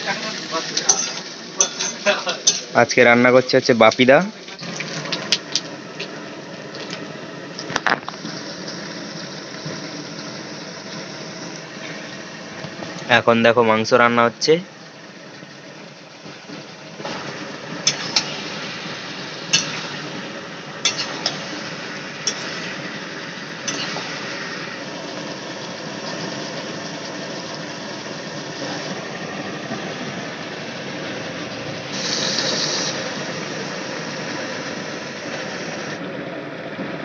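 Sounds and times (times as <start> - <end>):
food frying in a wok: 0.0 - 37.0
gas burner hissing: 0.0 - 37.0
metal spatula clinking on wok: 0.9 - 2.7.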